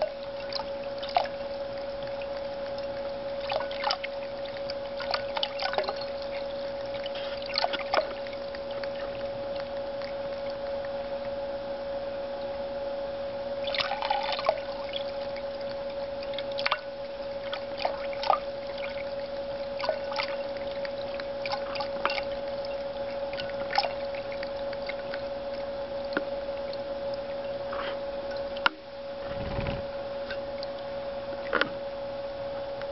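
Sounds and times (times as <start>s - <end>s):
fountain pump hum: 0.0s - 32.9s
cat lapping water: 0.3s - 11.0s, 13.6s - 26.3s
water splashing into basin: 3.4s - 9.3s, 13.6s - 15.0s, 19.8s - 22.3s
brief low rumble: 29.2s - 30.0s.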